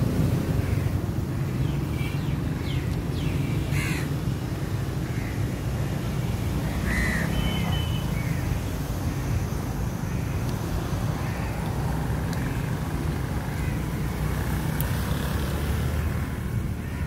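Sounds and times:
crow cawing faintly: 3.7 - 5.7, 6.6 - 9.4, 11.1 - 12.8, 15.9 - 17.0.

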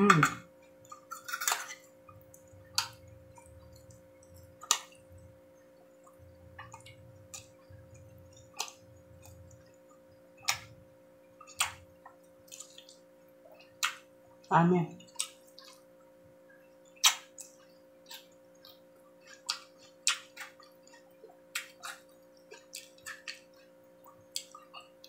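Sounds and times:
faint steady hum: 0.0 - 25.0
person chewing: 0.0 - 25.0.

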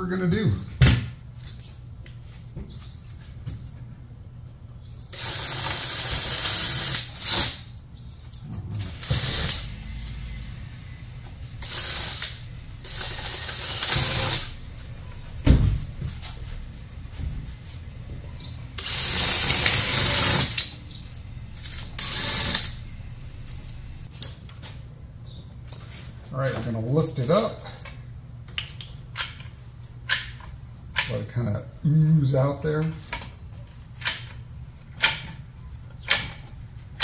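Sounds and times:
power drill bursts: 5.1 - 7.6, 8.8 - 16.4, 18.6 - 24.1
low thump: 15.4 - 16.2.

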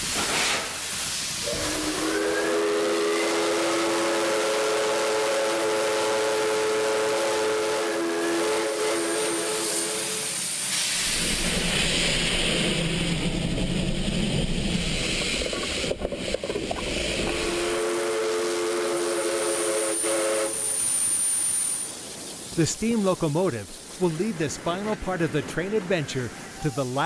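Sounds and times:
hissing steam: 0.0 - 27.0
steam whistle chord: 1.4 - 10.4, 17.3 - 21.9
low rumble: 11.2 - 17.4.

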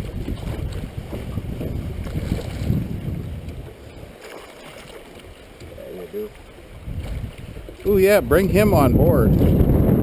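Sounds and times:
fish thrashing and splashing: 4.1 - 5.7.

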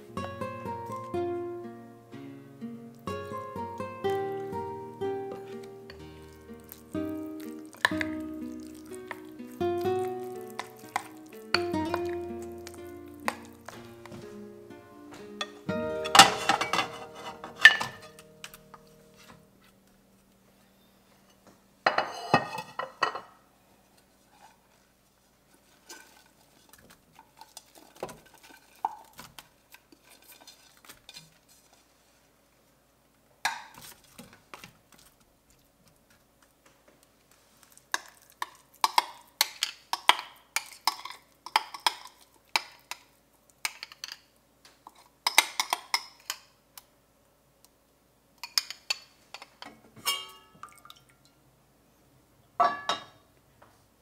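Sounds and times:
wooden spoon scraping metal pan: 15.4 - 18.2.

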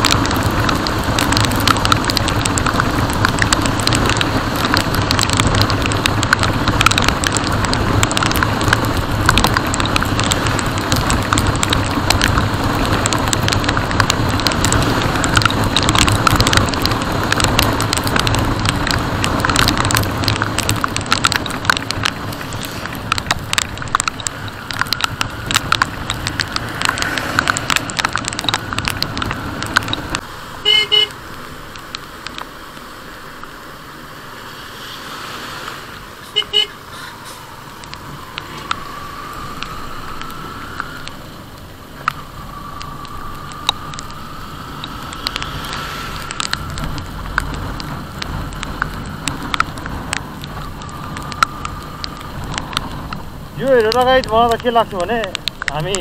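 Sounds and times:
rain hitting camera: 0.0 - 56.0
wind rush: 34.6 - 56.0.

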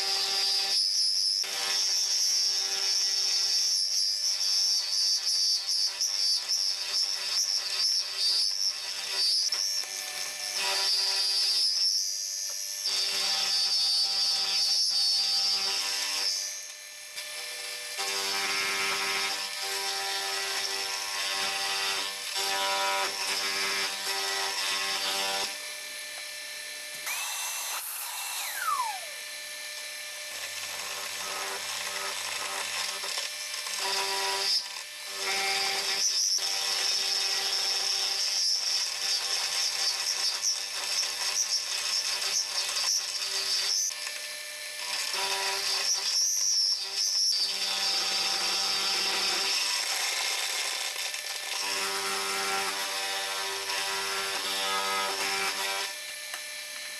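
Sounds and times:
high whine of cutting: 25.4 - 30.5.

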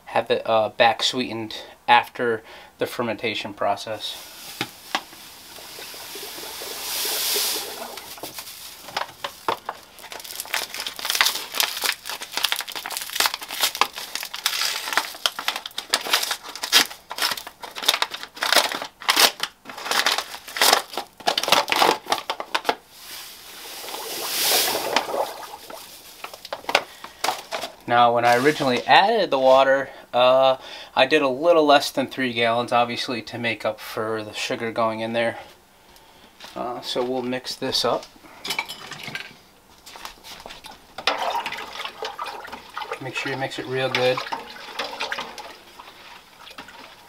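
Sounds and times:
paper bags crinkling and tearing: 4.1 - 28.8
sugar pouring into pot: 4.2 - 12.9, 23.0 - 26.0.

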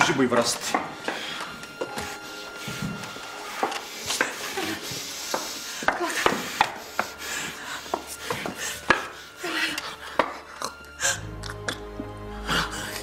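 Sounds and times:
people moving about: 0.0 - 9.1.

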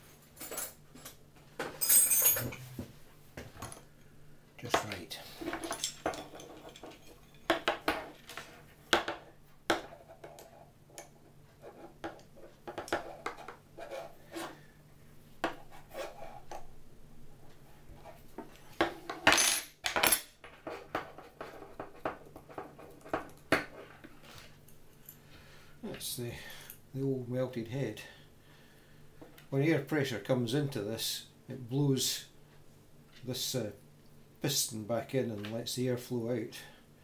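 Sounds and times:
metal tools clinking on workbench: 0.3 - 2.7, 5.5 - 7.7.

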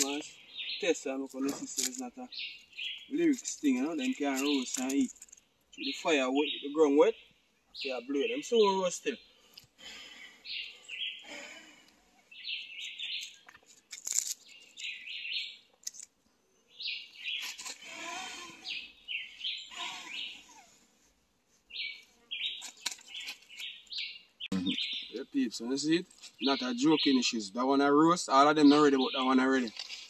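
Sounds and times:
songbird chirping: 0.0 - 30.0
rustling of sticks and leaves: 1.0 - 5.5, 13.0 - 16.2, 17.1 - 18.6, 19.7 - 24.0, 29.2 - 30.0.

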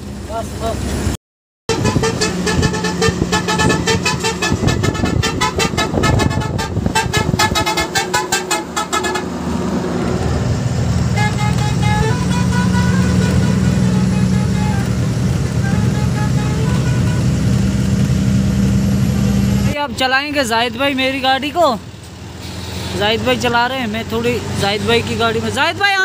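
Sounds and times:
truck musical horn: 1.7 - 18.2
truck engine running: 1.7 - 26.0.

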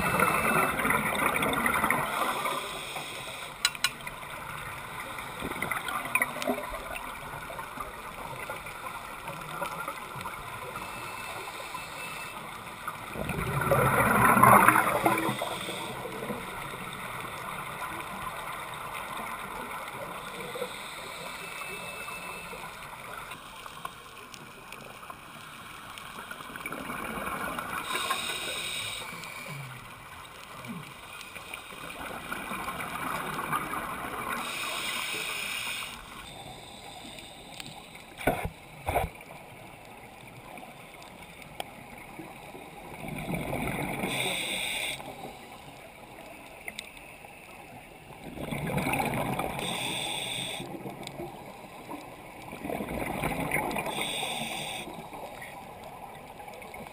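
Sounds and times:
underwater exhaled bubbles gurgling: 0.0 - 3.4, 12.4 - 46.8, 47.4 - 56.9
regulator hiss: 2.1 - 3.7, 15.3 - 16.3, 27.8 - 29.6, 34.3 - 38.2, 44.0 - 45.5, 49.5 - 50.8, 53.8 - 55.0.

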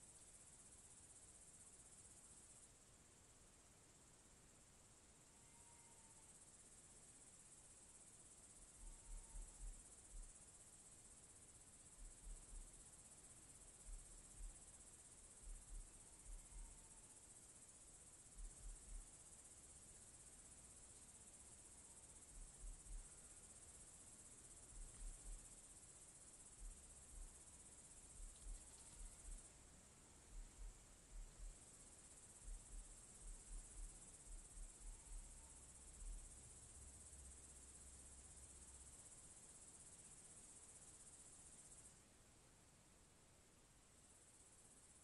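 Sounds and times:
night insects chirring: 0.0 - 45.0
soft low thumps: 8.8 - 10.4, 11.9 - 12.8, 13.7 - 14.8, 15.4 - 16.9, 18.3 - 19.2, 22.2 - 23.4, 24.6 - 25.7, 26.4 - 29.6, 30.2 - 36.4.

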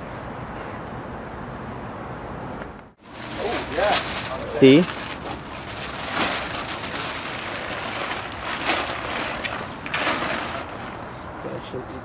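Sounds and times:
plastic wrap crinkling: 3.0 - 11.2.

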